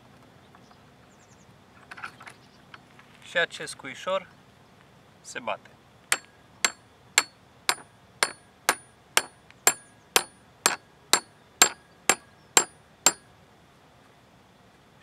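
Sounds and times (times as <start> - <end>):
hammer blows on metal pin: 6.1 - 13.2.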